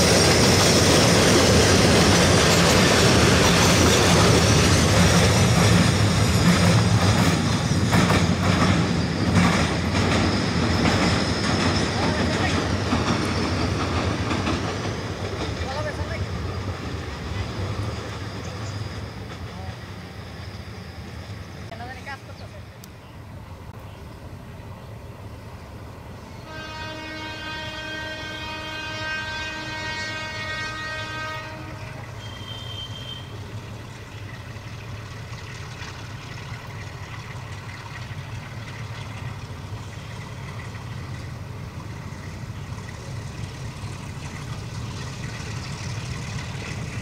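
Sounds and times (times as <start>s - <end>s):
locomotive engine rumble: 0.0s - 47.0s
locomotive horn blast: 26.4s - 33.4s.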